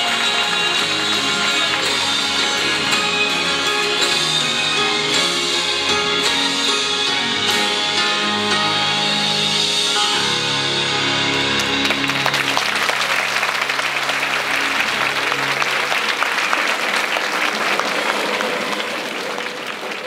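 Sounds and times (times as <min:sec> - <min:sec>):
audience applause: 0:00.0 - 0:07.5, 0:11.3 - 0:20.0
music with held notes: 0:00.0 - 0:16.5.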